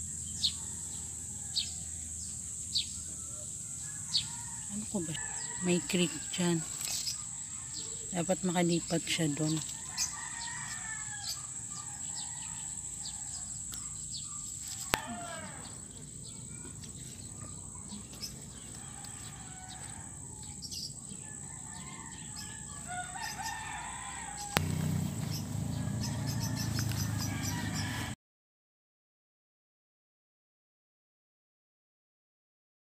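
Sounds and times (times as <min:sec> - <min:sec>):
rooster crowing: 0:00.0 - 0:02.2, 0:03.0 - 0:08.2, 0:09.4 - 0:13.6, 0:14.8 - 0:16.7, 0:17.9 - 0:28.2.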